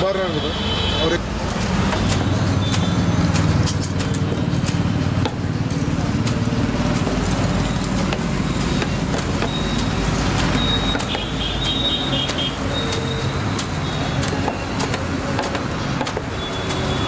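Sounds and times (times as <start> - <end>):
road traffic hum: 0.0 - 17.0
sharp knocks: 1.4 - 5.6, 7.9 - 17.0.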